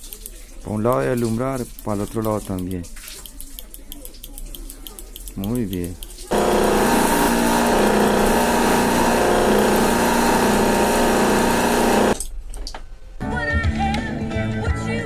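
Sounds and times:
small motor running loudly: 6.3s - 12.2s.

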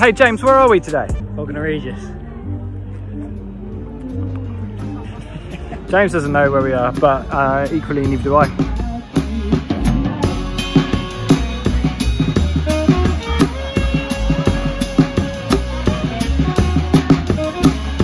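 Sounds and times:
live band playing: 4.1s - 18.0s
drum kit beat: 6.2s - 18.0s.

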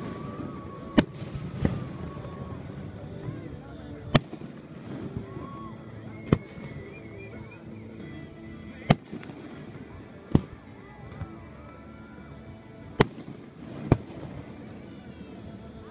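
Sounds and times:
firework booms: 0.0s - 3.4s, 4.1s - 5.6s, 8.8s - 11.3s, 12.9s - 14.6s.

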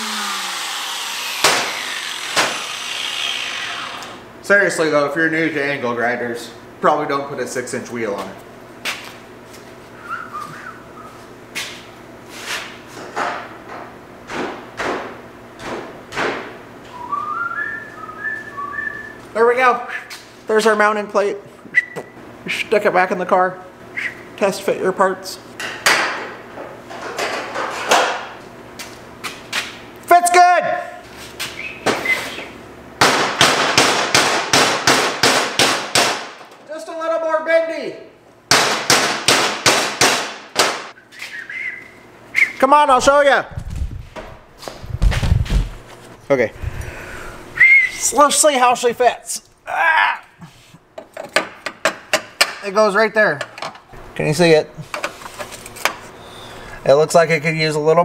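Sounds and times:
man whistling: 10.0s - 11.2s, 16.9s - 19.2s, 21.7s - 22.2s, 24.0s - 24.3s, 31.6s - 32.5s, 41.0s - 42.6s, 47.6s - 48.2s.

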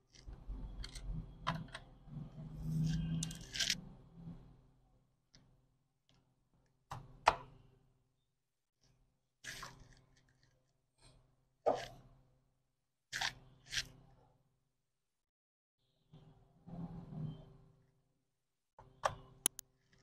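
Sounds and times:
rubbing and handling noise: 2.4s - 3.8s.

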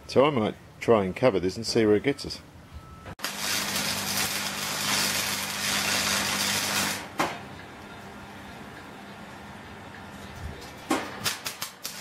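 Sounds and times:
arc welding hiss: 3.2s - 7.1s.

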